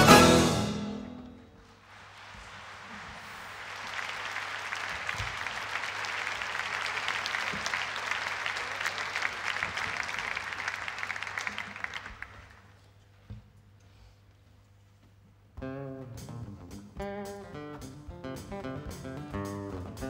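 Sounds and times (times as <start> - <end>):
audience applauding: 1.9 - 12.8.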